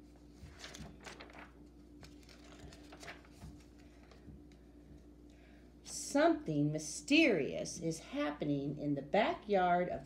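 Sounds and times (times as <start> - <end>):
steady low hum: 0.0 - 10.0
book pages turning: 0.2 - 4.6.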